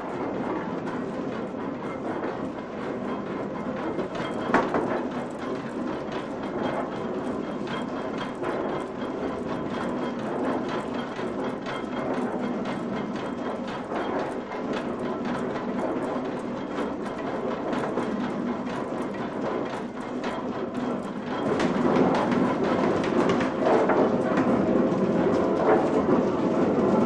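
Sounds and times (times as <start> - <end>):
mill machinery clattering: 0.0 - 27.0.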